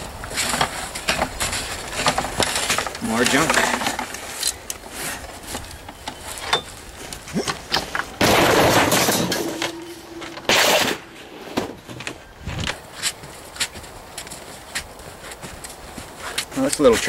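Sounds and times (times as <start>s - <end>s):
scrap metal knocks and clatters: 0.3s - 4.4s, 7.6s - 12.2s
loud metal crash ringing: 8.2s - 11.8s.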